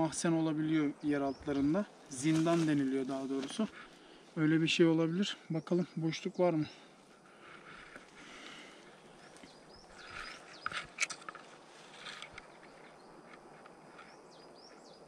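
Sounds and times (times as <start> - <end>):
rustling: 2.0 - 4.4, 7.0 - 14.9.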